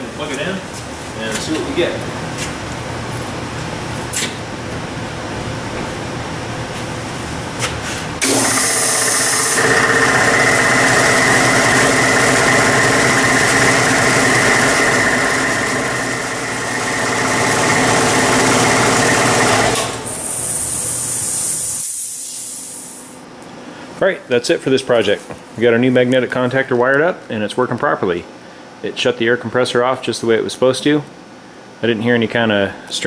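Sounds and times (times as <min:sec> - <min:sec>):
air compressor running: 0:07.8 - 0:23.2
contactor switching: 0:08.2 - 0:21.7
hiss of released air: 0:20.0 - 0:23.2.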